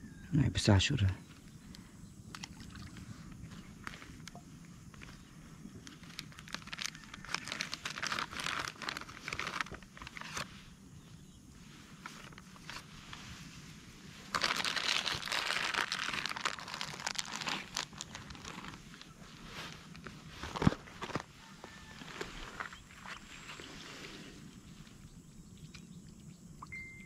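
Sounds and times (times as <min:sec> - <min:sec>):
crinkling rustling handling noise: 0:03.2 - 0:10.6, 0:11.7 - 0:23.8.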